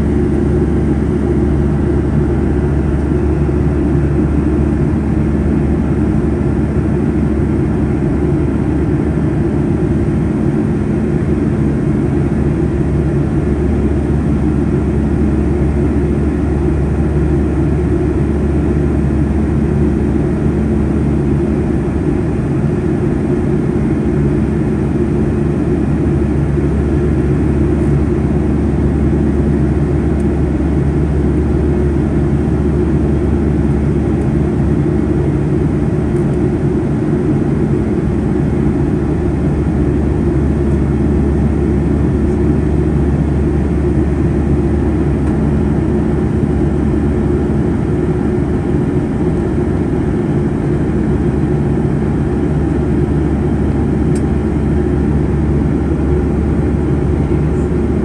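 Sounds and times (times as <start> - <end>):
faint steady hum: 0.0 - 58.0
jet engine drone in cabin: 0.0 - 58.0.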